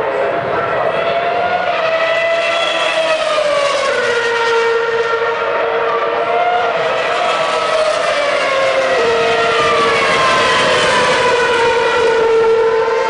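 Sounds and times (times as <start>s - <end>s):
racing car engines screaming: 0.0s - 13.0s.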